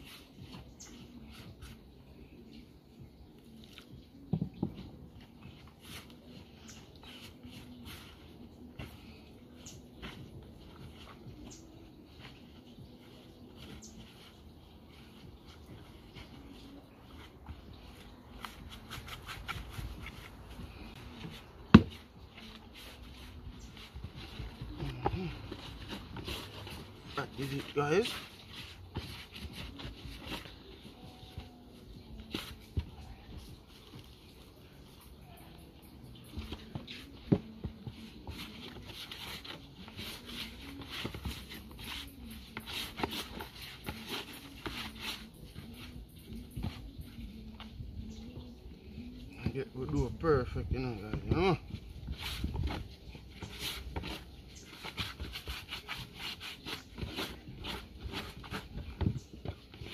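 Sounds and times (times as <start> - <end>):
hands kneading dough squishing: 4.7 - 35.3.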